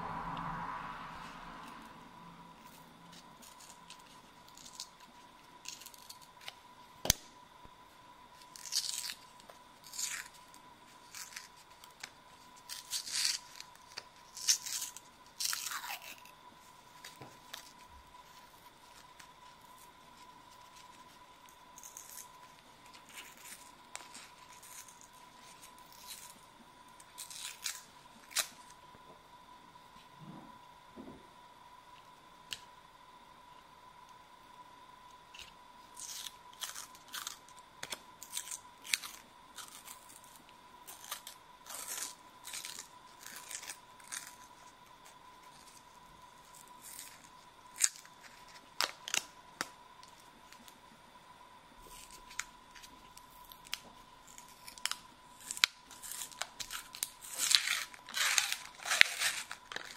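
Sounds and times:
paper wrappers tearing: 8.4 - 16.3, 27.1 - 28.7, 51.8 - 59.9.

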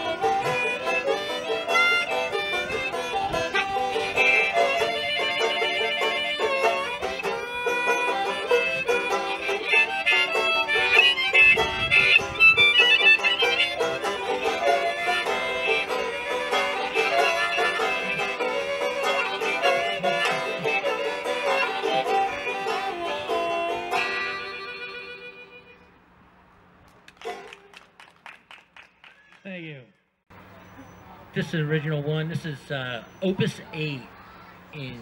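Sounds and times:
harmonica lines: 0.0 - 26.0
picked banjo notes: 0.0 - 26.0, 27.2 - 27.5.

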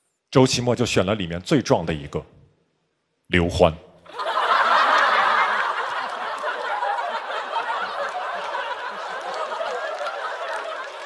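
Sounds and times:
studio audience laughing: 4.1 - 11.0.

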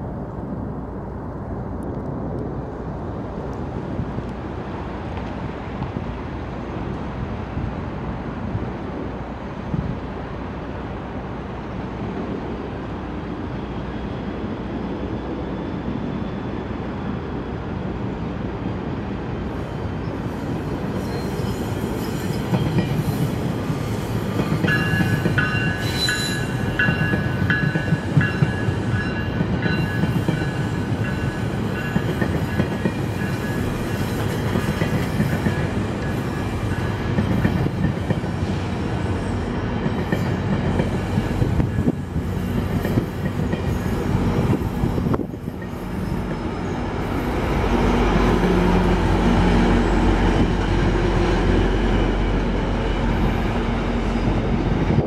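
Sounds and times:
high wheel squeal: 20.0 - 26.8, 40.2 - 47.4
train wheels rumbling and clicking: 20.5 - 55.0.

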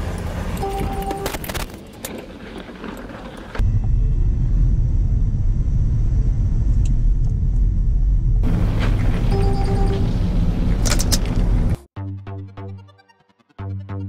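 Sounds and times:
car driving: 0.0 - 11.8
loud steady low rumble: 3.6 - 11.8.

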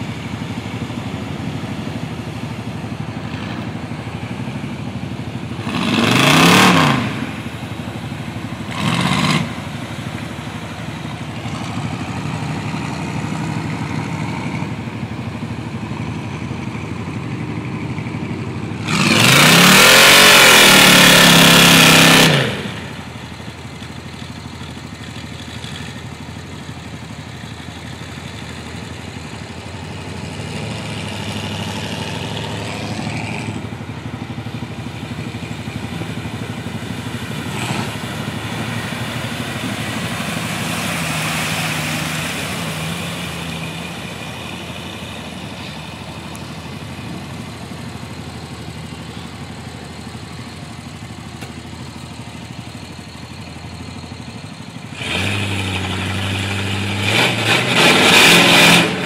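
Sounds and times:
off-road vehicle engines running: 0.0 - 59.0
engine revving hard: 5.6 - 7.4, 8.7 - 9.7, 18.8 - 23.0, 55.0 - 59.0.

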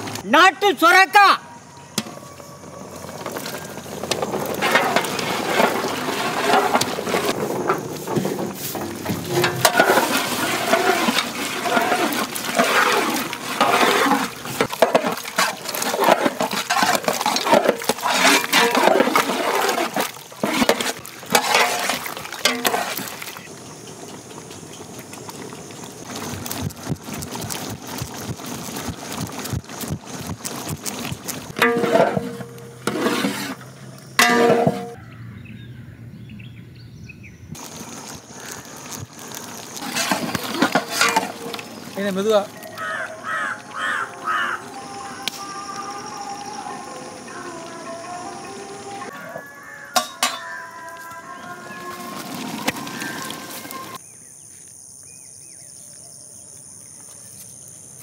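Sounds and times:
ladle stirring sloshing liquid: 3.3 - 35.0, 39.6 - 42.7
vegetable pieces splashing into pot: 8.9 - 23.5.

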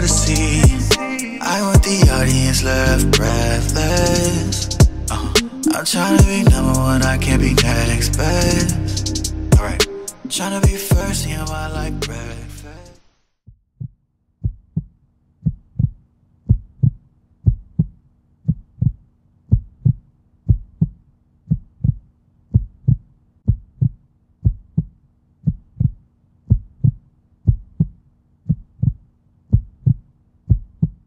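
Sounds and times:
heartbeat thumps: 0.0 - 1.0, 1.8 - 2.3, 4.8 - 5.5, 6.1 - 6.9, 9.5 - 9.8, 10.6 - 11.1, 13.8 - 31.0.

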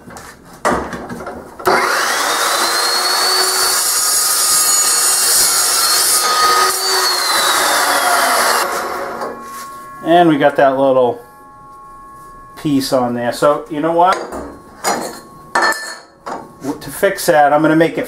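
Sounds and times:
chop saw cutting steel tubing: 1.6 - 14.0.

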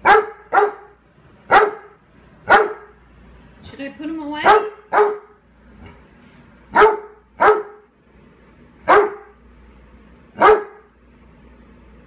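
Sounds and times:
dog barking: 0.0 - 3.0, 4.4 - 5.4, 6.7 - 7.9, 8.8 - 9.4, 10.4 - 10.9.

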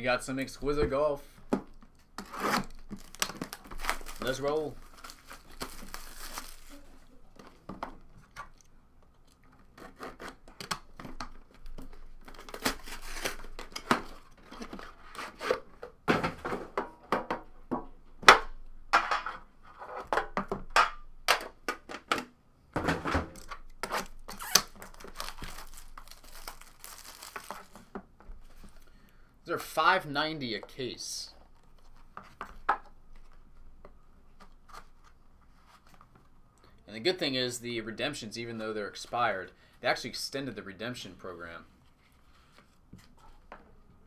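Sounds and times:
plastic wrap crinkling and tearing: 1.9 - 7.2, 12.2 - 14.3, 23.4 - 27.9.

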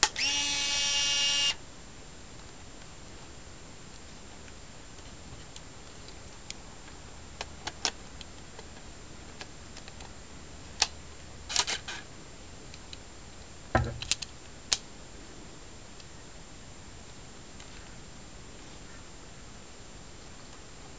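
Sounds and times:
dull thump: 13.7 - 14.0.

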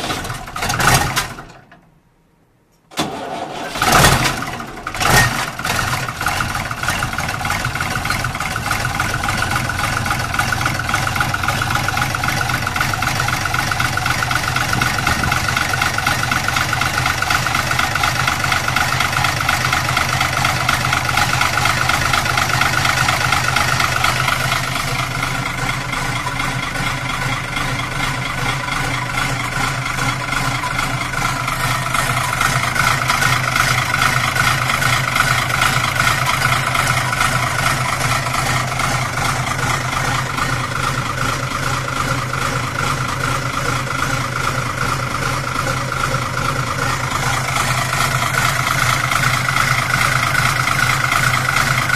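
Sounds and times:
tractor diesel engine idling: 0.0 - 2.0, 2.9 - 51.9.

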